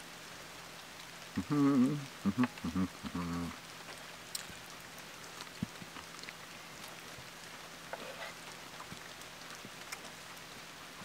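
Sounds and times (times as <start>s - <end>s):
light rain hissing: 0.0s - 11.0s
light rain ticks: 0.0s - 11.0s.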